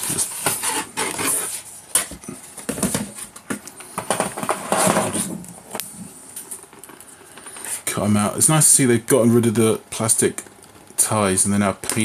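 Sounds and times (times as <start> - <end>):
cardboard packaging rustling: 0.0 - 5.8.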